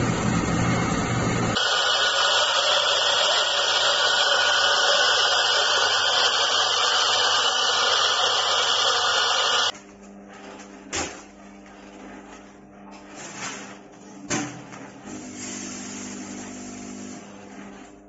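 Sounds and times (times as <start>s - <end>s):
coffee grinder running: 0.0s - 10.5s.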